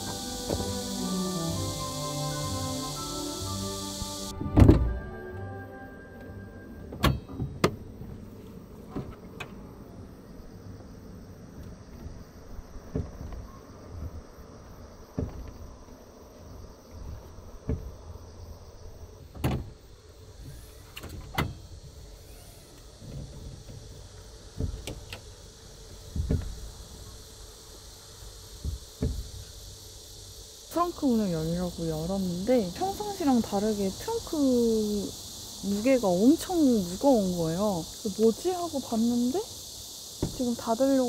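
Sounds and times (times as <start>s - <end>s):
tailgate thunks and knocks: 4.4s - 5.0s, 7.0s - 7.9s, 12.8s - 14.2s, 15.1s - 15.7s, 17.1s - 18.1s, 19.3s - 19.8s, 24.5s - 25.1s, 26.0s - 26.8s, 28.6s - 29.5s, 40.2s - 40.5s.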